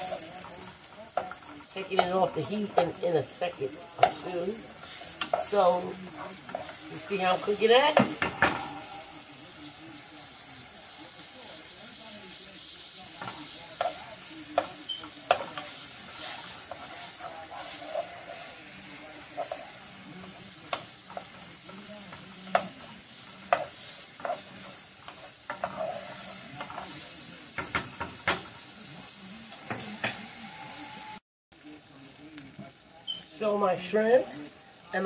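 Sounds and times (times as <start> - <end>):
onions sizzling in frying pan: 0.0 - 35.0
wooden spoon knocking pan: 1.2 - 3.0, 7.8 - 8.7.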